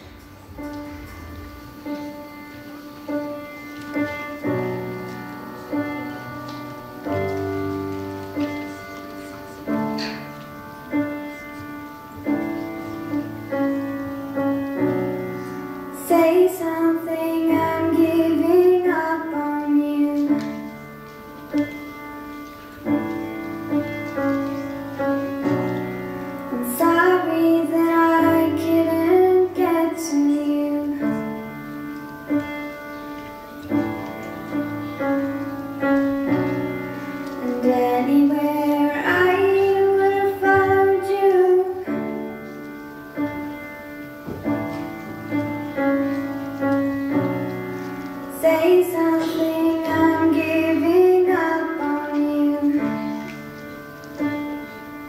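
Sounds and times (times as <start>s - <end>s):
piano chords: 0.0s - 55.0s
girl singing: 15.9s - 20.8s, 26.5s - 31.5s, 37.4s - 42.1s, 48.3s - 53.2s.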